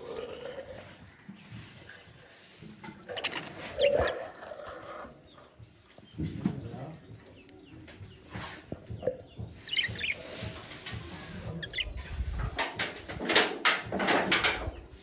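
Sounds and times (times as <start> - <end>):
budgies chirping: 3.0 - 5.4, 6.0 - 12.6.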